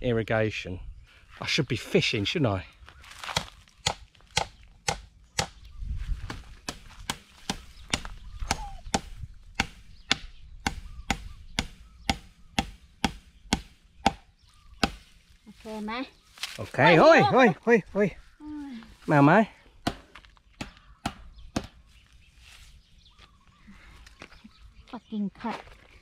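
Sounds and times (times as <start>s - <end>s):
sharp chopping strikes: 3.3s - 5.6s, 6.2s - 15.1s, 19.8s - 21.8s.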